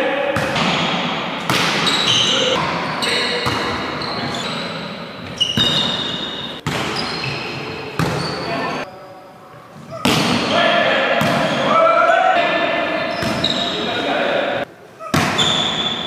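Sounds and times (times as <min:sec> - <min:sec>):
volleyball slaps: 0:00.3 - 0:02.3, 0:05.5 - 0:07.0, 0:08.0 - 0:08.2, 0:10.0 - 0:11.7, 0:15.1 - 0:15.9
sneakers squeaking on court: 0:00.6 - 0:08.9, 0:13.0 - 0:14.0, 0:15.0 - 0:16.0
players' voices: 0:06.8 - 0:16.0.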